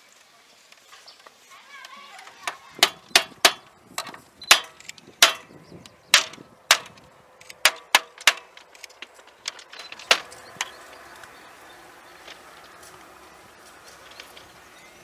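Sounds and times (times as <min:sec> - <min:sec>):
object knocking on bamboo and wood: 0:02.4 - 0:05.5, 0:06.2 - 0:07.0, 0:07.6 - 0:10.8.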